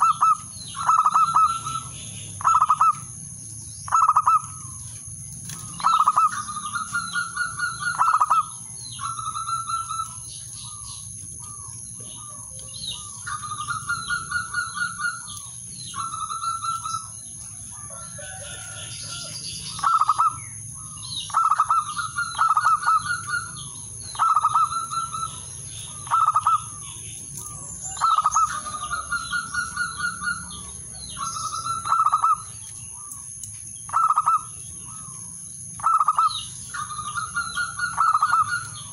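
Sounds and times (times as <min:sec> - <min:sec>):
dove cooing song: 0:00.0 - 0:03.2, 0:03.8 - 0:33.2, 0:33.9 - 0:38.9.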